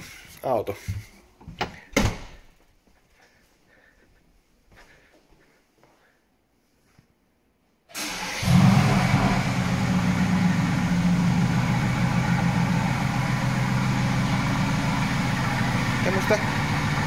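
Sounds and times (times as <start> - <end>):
loud low droning car noise: 8.4 - 17.0.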